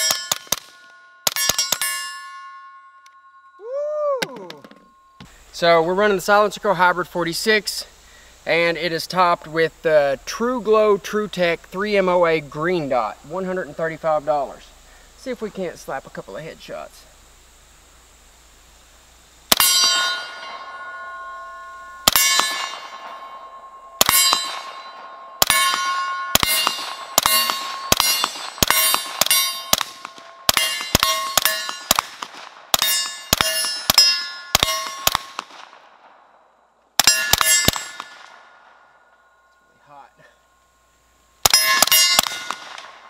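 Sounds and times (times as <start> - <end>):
steel target clanging: 0.0 - 3.5, 19.5 - 32.2, 32.8 - 35.4, 37.0 - 38.6, 41.4 - 43.0
suppressed gunshots: 24.0 - 35.9, 41.4 - 43.0.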